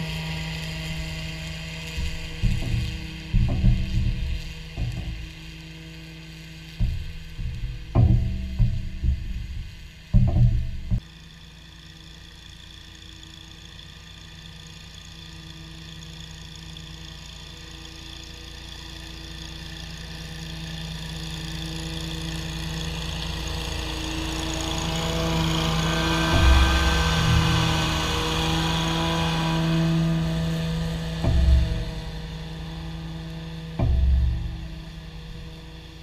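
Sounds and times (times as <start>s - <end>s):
mower engine running: 0.0s - 36.0s
low thuds: 2.0s - 5.5s, 6.7s - 11.0s, 26.2s - 29.4s, 30.5s - 36.0s.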